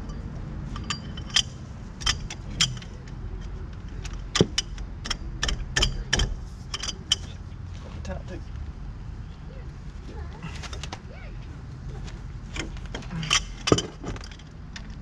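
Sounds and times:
hand tools clinking on metal: 0:00.0 - 0:07.4, 0:12.5 - 0:14.5.

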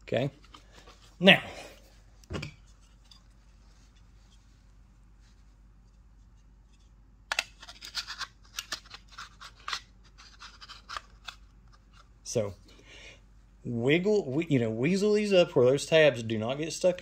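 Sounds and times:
plastic parts clicking and scraping: 0:00.3 - 0:01.1, 0:06.7 - 0:12.1.

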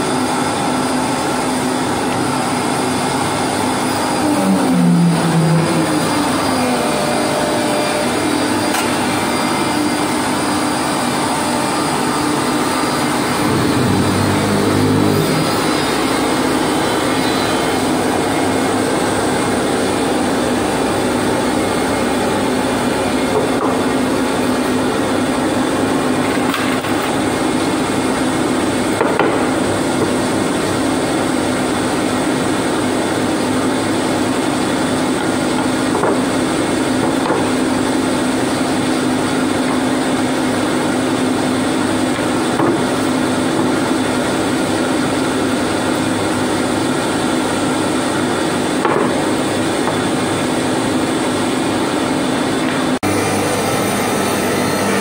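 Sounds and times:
low hum: 0:03.4 - 0:24.5.

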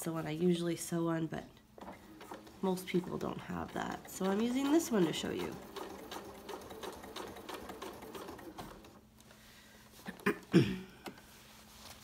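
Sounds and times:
sewing machine stitching: 0:01.8 - 0:09.0.

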